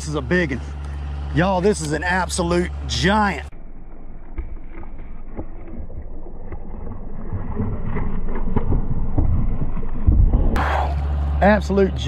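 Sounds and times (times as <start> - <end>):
knocks and thumps on boat: 7.9 - 10.6.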